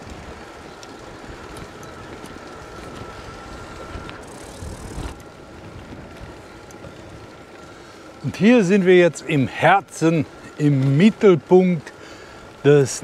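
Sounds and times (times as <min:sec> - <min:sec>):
wind rumble on microphone: 0:00.0 - 0:07.3
bicycle tyre noise: 0:00.0 - 0:13.0
faint steady whine: 0:00.0 - 0:13.0.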